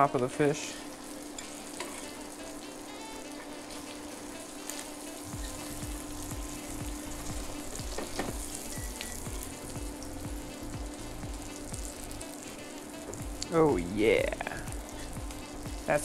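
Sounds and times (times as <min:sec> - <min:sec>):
butter sizzling in a pan: 0:00.0 - 0:16.0
low regular thumps: 0:05.3 - 0:12.2, 0:13.1 - 0:16.0.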